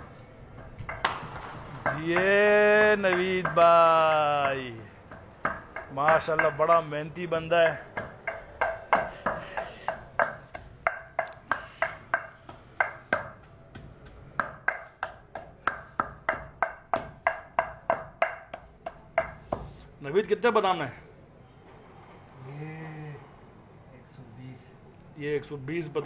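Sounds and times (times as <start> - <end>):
wooden pestle pounding in mortar: 0.6 - 19.8.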